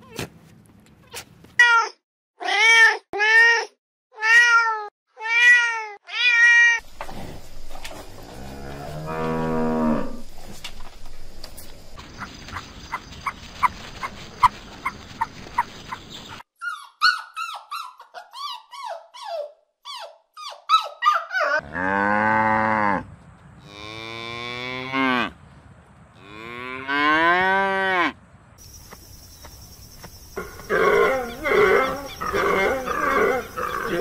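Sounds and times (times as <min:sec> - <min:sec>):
cow mooing: 0:08.3 - 0:10.2, 0:21.6 - 0:23.0, 0:26.2 - 0:28.2, 0:30.4 - 0:34.0.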